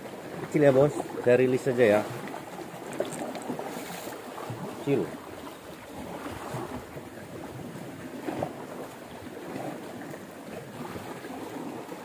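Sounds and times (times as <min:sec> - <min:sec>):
sea water washing against rocks: 0:00.0 - 0:12.0
wind on microphone: 0:02.9 - 0:10.0.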